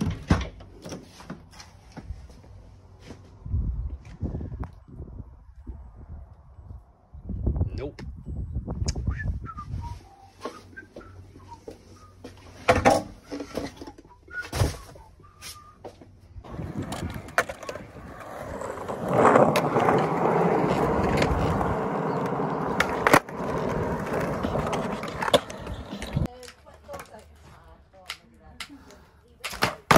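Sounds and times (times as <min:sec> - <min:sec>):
skateboard wheels rolling on concrete: 0:09.5 - 0:28.2, 0:29.4 - 0:29.9
skateboard clacks: 0:16.5 - 0:27.1, 0:29.4 - 0:29.9.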